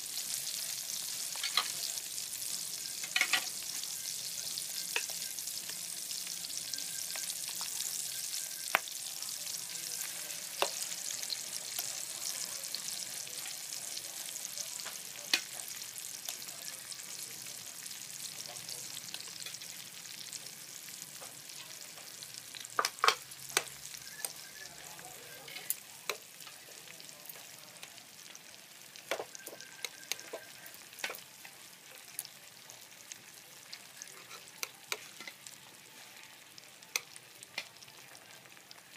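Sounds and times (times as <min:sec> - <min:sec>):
onions sizzling in oil: 0:00.0 - 0:38.9
utensils clicking against pan: 0:01.3 - 0:01.8, 0:03.0 - 0:03.6.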